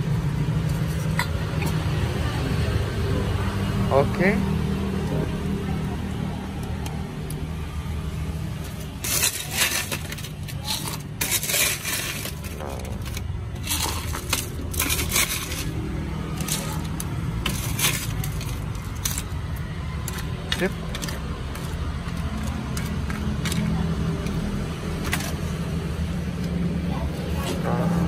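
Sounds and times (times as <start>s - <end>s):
ice cubes clattering into cup: 8.9s - 24.4s.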